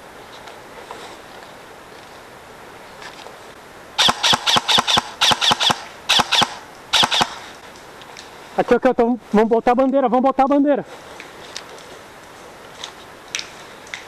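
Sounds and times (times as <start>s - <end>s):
airsoft rifle shots: 4.0s - 7.6s.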